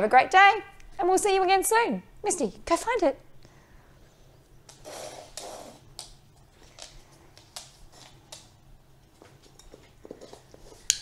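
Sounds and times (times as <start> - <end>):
dog sniffing: 4.7 - 5.9.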